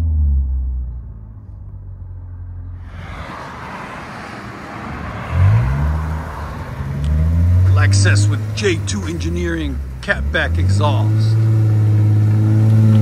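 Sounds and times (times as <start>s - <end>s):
car exhaust note: 0.0s - 13.0s
road and wind hiss: 2.7s - 10.2s.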